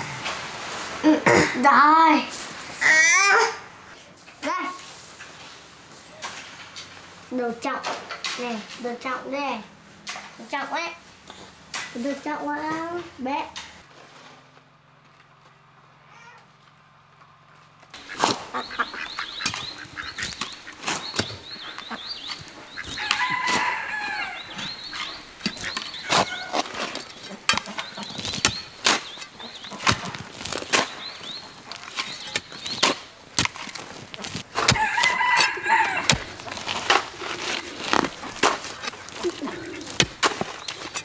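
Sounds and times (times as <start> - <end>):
blades striking dry soil: 17.9 - 41.0
poultry calling: 18.0 - 41.0.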